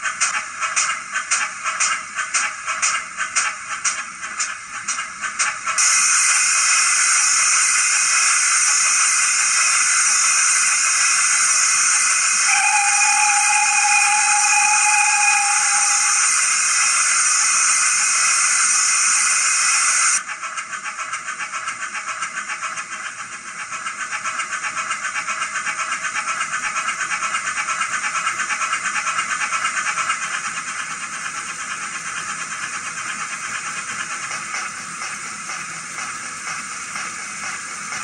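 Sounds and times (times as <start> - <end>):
steam exhaust chuffs: 0.0 - 38.0
steam hiss: 4.3 - 20.2, 23.8 - 38.0
steam whistle: 5.8 - 20.2.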